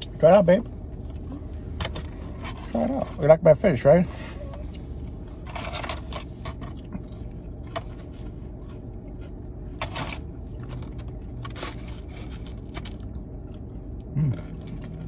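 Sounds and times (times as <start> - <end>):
car air conditioning hum: 0.0 - 15.0
chewing: 6.4 - 15.0.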